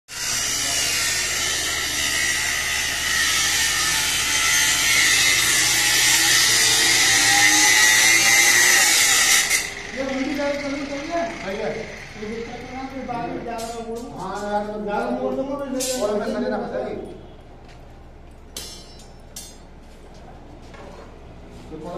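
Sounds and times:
power tool grinding through rebar: 0.1s - 13.3s.

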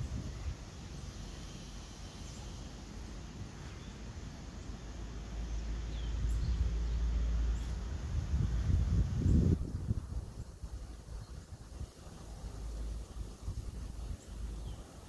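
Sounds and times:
wind rumble on microphone: 0.0s - 1.0s, 5.8s - 15.0s.

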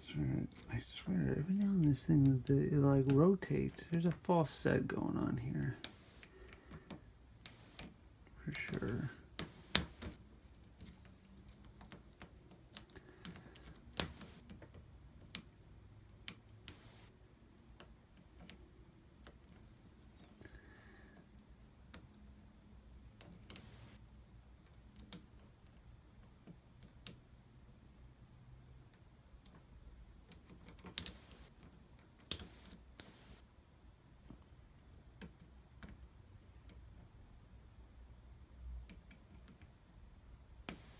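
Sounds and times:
small metallic clicks: 5.6s - 15.5s, 16.2s - 20.6s, 23.1s - 24.0s, 24.6s - 27.2s, 28.9s - 33.4s.

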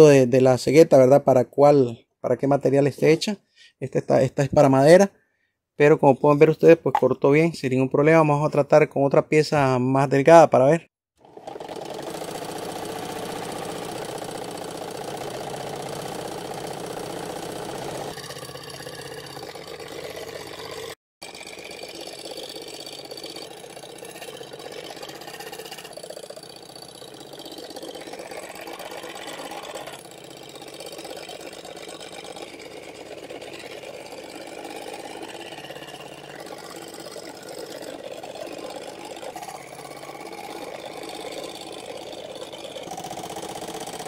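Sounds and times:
scroll saw cutting wood: 11.2s - 44.0s.

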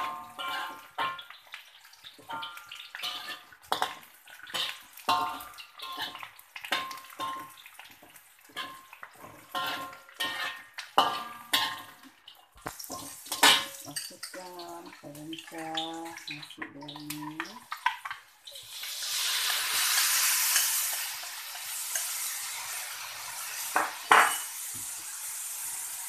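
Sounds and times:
metal spatula scraping wok: 0.0s - 1.3s, 2.2s - 7.6s, 8.4s - 14.4s, 18.7s - 24.7s.

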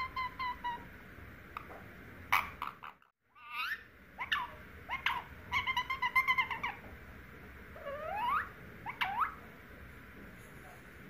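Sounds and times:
parakeet squawking and whistling: 0.0s - 0.9s, 2.3s - 6.9s, 7.8s - 9.4s.

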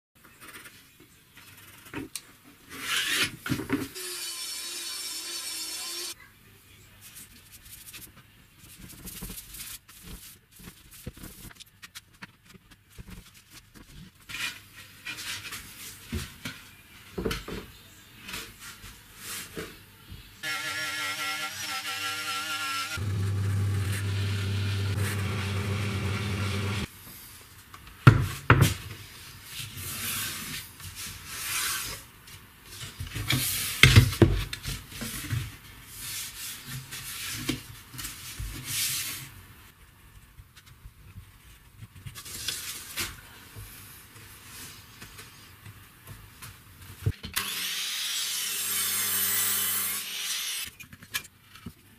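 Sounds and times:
machine hum: 23.0s - 26.9s.

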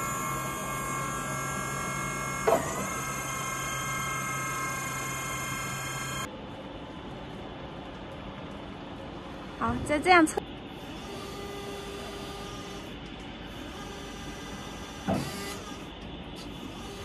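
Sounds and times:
hydraulic pump motor whining: 0.0s - 6.3s, 10.8s - 17.0s.

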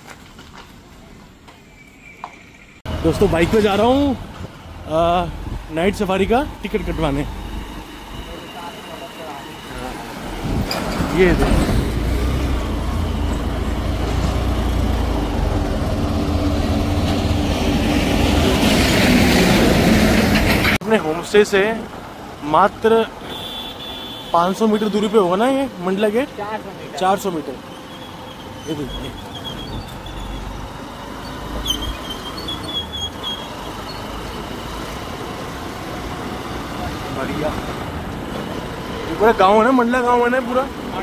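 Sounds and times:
rushing wind noise: 4.2s - 6.0s, 10.2s - 13.7s.

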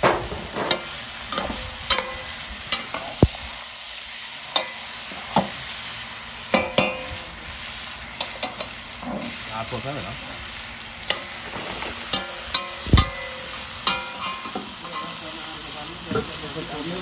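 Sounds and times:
curry sizzling in a wok: 0.0s - 17.0s.

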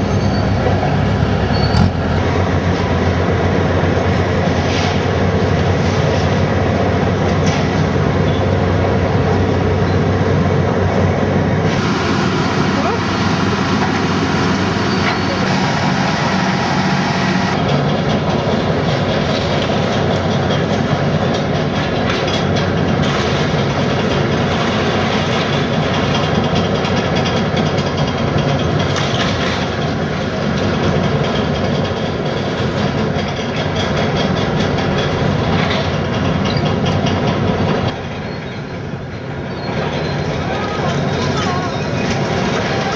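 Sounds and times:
machine engine running: 0.9s - 37.9s
clatter of breaking material: 21.3s - 29.8s.

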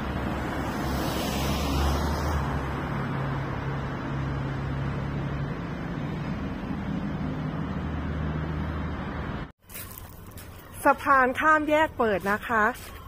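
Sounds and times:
low engine hum: 0.0s - 13.0s
car tyre hiss passing: 0.5s - 2.6s.

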